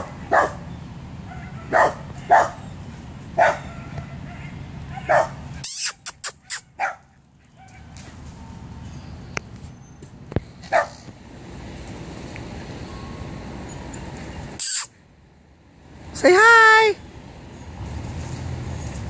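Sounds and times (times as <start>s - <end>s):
dog barking: 0.0s - 2.6s, 3.4s - 5.4s, 6.8s - 7.9s, 10.7s - 11.0s.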